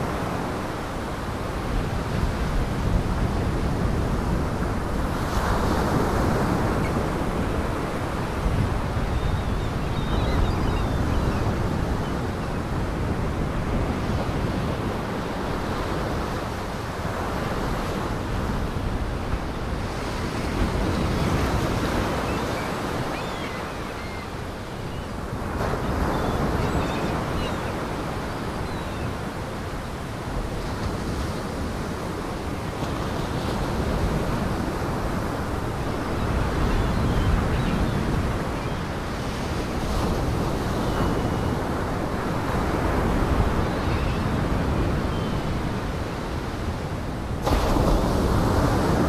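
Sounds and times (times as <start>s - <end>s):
wind: 0.0s - 49.0s
waves breaking: 47.4s - 49.0s.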